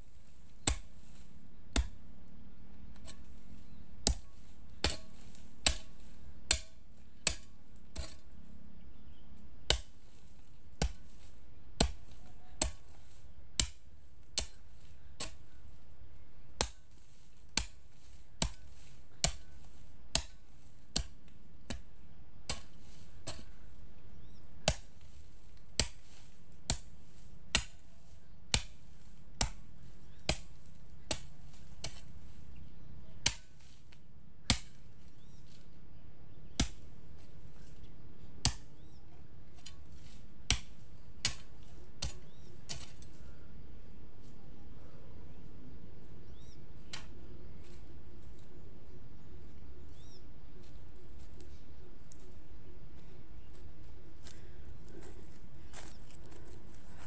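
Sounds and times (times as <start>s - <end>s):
hoe chopping into soil: 0.1s - 2.0s, 3.0s - 8.4s, 9.6s - 35.7s, 36.4s - 43.4s.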